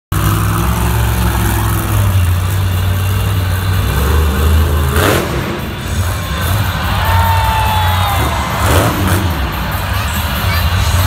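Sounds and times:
monster truck engine running loud: 0:00.1 - 0:11.0.

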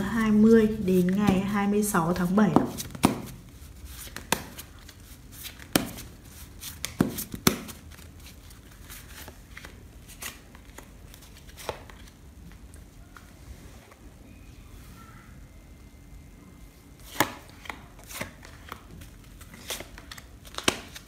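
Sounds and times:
cards being shuffled: 0:00.6 - 0:13.3, 0:17.0 - 0:21.0
card clicks and snaps: 0:19.6 - 0:21.0.

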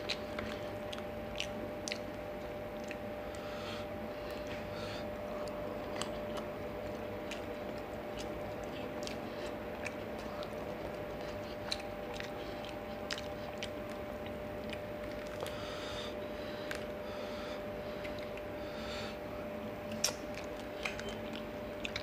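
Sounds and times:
mouth clicks and smacks: 0:00.0 - 0:03.4, 0:05.4 - 0:15.6, 0:18.0 - 0:18.5, 0:19.9 - 0:22.0
faint background hum: 0:00.0 - 0:22.0
person chewing food: 0:00.0 - 0:22.0.

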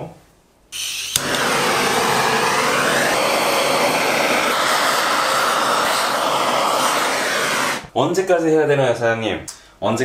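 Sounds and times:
gas torch hissing: 0:00.8 - 0:08.0.

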